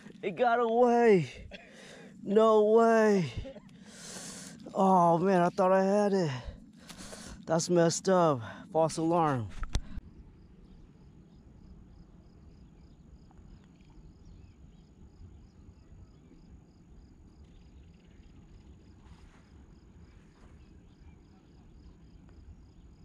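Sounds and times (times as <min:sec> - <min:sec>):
insect chirping: 0:00.0 - 0:23.0.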